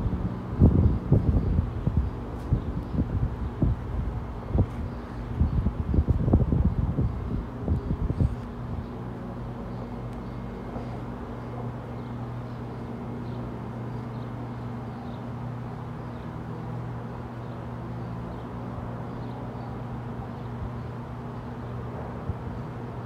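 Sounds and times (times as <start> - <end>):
outdoor noise: 0.0 - 23.0
steady low hum: 0.0 - 23.0.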